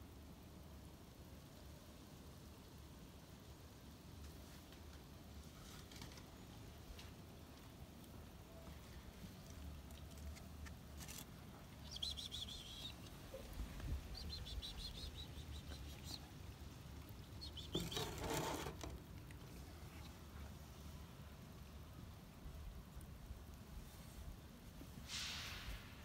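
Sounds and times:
small birds chirping: 8.6s - 20.8s
short rush of noise: 25.0s - 26.0s.

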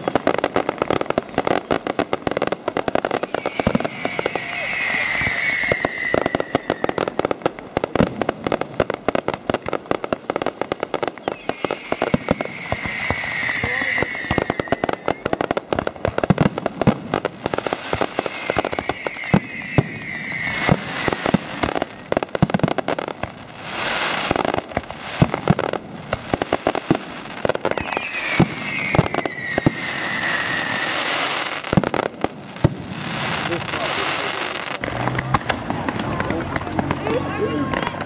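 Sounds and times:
fireworks bursting with crackling: 0.0s - 38.0s
high wavering whistle: 3.3s - 6.9s, 27.7s - 30.9s.

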